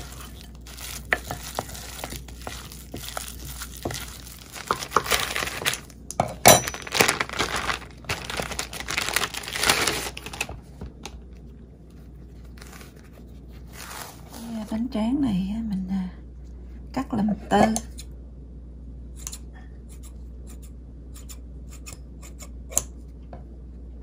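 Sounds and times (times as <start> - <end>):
plastic packaging crinkling: 0.0 - 6.0, 6.6 - 11.2.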